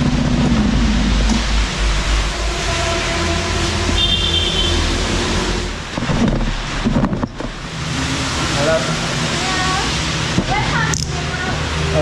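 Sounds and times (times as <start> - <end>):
short high tone: 2.3 - 5.6.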